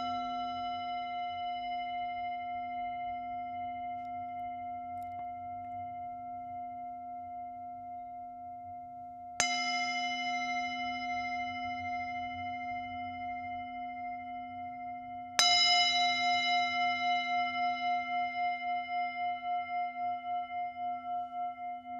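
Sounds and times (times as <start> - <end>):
singing bowl struck: 0.0 - 6.2
singing bowl ringing: 0.0 - 21.9.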